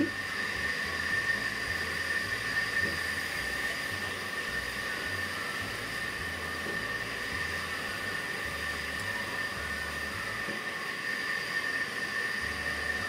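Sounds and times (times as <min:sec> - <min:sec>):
high-pitched whine: 0:00.0 - 0:13.0
steady hiss: 0:00.0 - 0:13.0.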